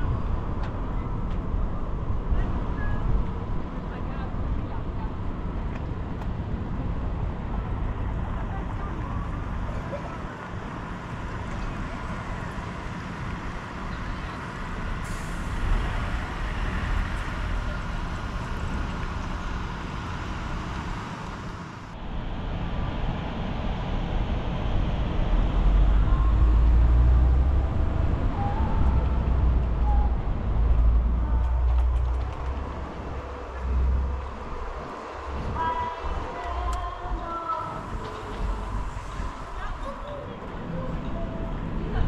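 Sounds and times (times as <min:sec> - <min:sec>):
road noise while driving: 0:00.0 - 0:42.0
heavy low rumble: 0:21.4 - 0:42.0.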